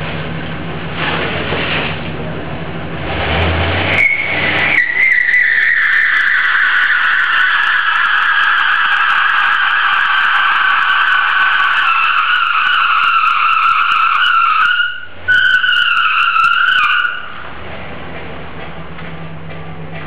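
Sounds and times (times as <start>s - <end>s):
car engine humming: 0.0s - 20.0s
tyre squealing in burnout: 3.0s - 17.6s.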